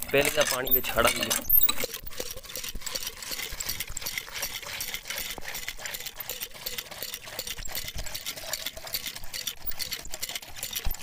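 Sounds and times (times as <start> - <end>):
water gushing into plastic bucket: 0.0 - 11.0.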